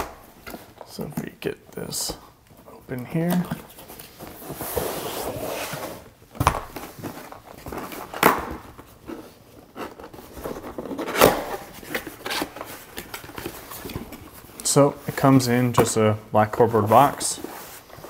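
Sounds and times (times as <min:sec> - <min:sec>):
cardboard scraping rustle: 0:03.8 - 0:06.1, 0:16.7 - 0:18.0.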